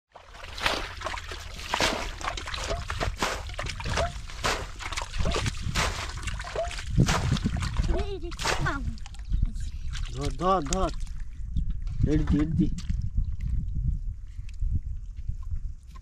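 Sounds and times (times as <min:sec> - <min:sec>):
shallow water splashing: 0:00.1 - 0:11.5.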